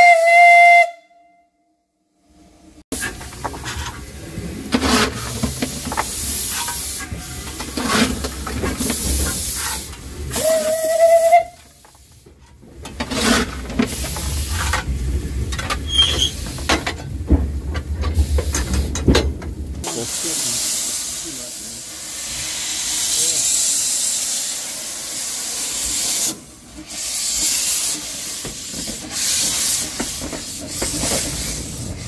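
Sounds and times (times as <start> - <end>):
coal shovel scraping and clattering: 4.7 - 10.0, 12.4 - 15.0
steam hissing: 4.7 - 12.4, 19.8 - 32.0.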